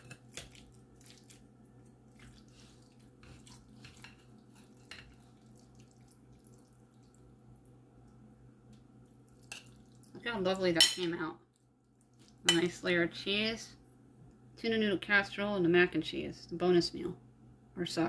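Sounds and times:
spoon scooping casserole: 0.0 - 8.1, 8.7 - 10.2, 10.8 - 13.0
low steady hum: 0.0 - 18.0.

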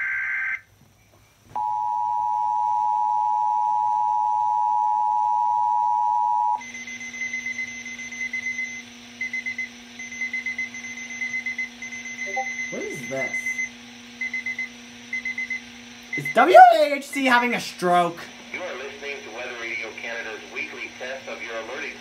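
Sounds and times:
stuttering high beep: 6.7 - 13.7
two-tone attention signal: 10.0 - 13.7
warbling data burst: 12.2 - 13.6
hiss with low hum: 12.3 - 22.0.

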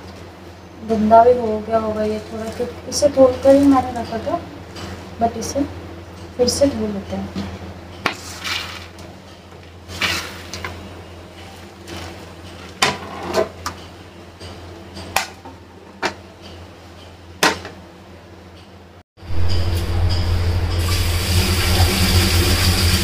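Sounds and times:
low steady hum: 19.2 - 23.0
tap water running into steel sink: 20.8 - 23.0.

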